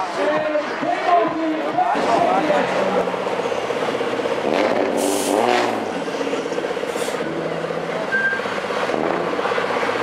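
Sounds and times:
diesel truck engine idling: 0.0 - 10.0
short hisses: 5.0 - 5.4.

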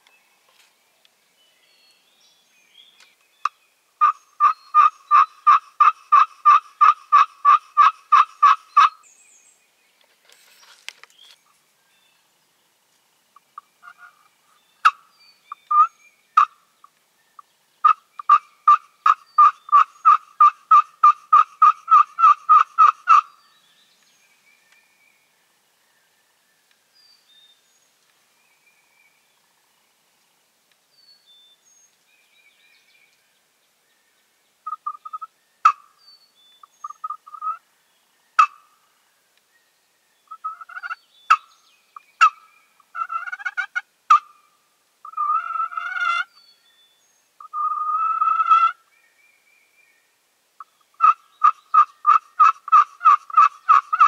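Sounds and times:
turkey yelps: 17.8 - 23.3, 37.0 - 37.6, 40.3 - 41.4, 43.0 - 44.4, 45.0 - 46.3, 47.4 - 48.8, 51.0 - 54.0.

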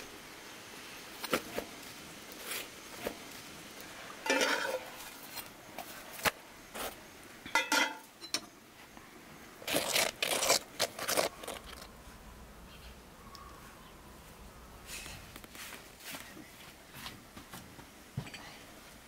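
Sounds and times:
metal spatula scraping a plate: 4.3 - 5.4.

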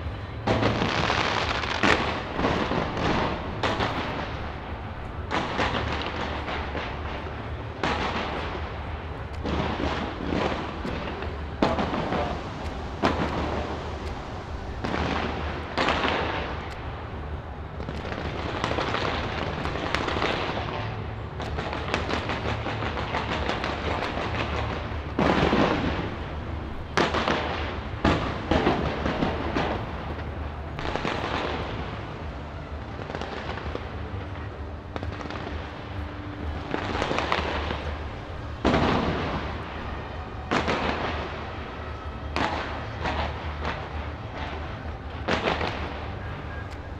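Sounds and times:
fireworks bangs and crackling: 0.0 - 46.9.

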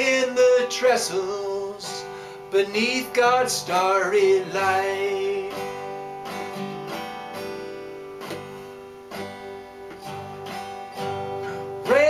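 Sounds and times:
man singing: 0.0 - 6.0, 11.6 - 12.0
acoustic guitar strumming: 0.0 - 12.0.

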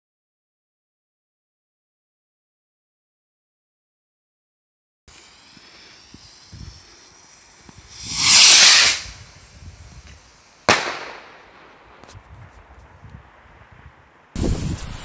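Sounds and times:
firework bang: 5.1 - 11.8
firework rocket hissing: 5.1 - 12.1, 14.4 - 15.0.

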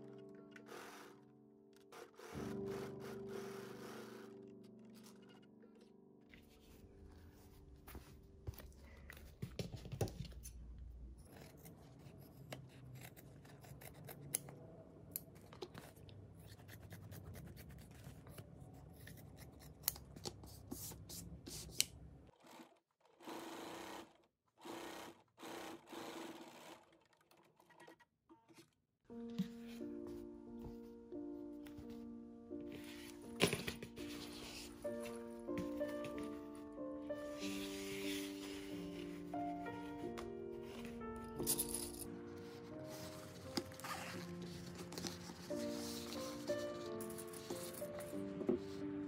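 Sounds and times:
scissors cutting fabric: 11.2 - 14.6.

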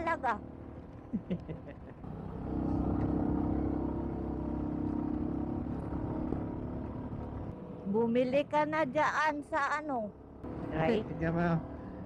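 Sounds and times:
road noise: 0.0 - 12.0
motorcycle engine running: 2.0 - 7.6.

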